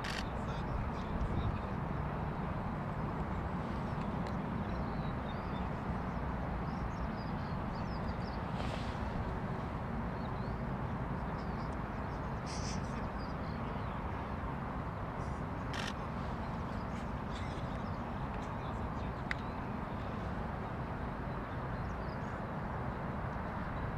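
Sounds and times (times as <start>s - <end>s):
short sharp bird calls: 15.7s - 16.0s.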